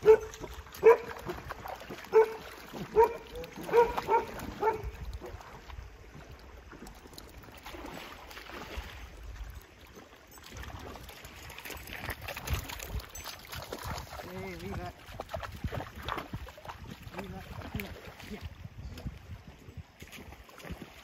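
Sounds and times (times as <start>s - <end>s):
water lapping against stones: 0.0s - 21.0s
wind on microphone: 2.9s - 6.0s, 11.9s - 20.8s.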